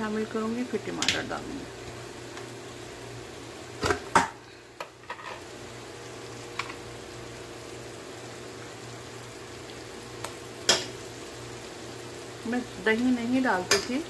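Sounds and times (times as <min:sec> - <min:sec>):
food bubbling in a wok: 0:00.0 - 0:14.0
sharp knock in a pan: 0:03.8 - 0:04.4, 0:10.7 - 0:11.0.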